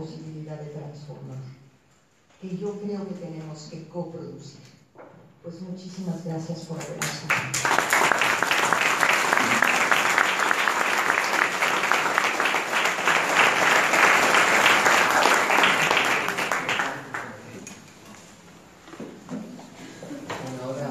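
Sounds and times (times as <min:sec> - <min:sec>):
audience applauding: 0:07.3 - 0:17.6.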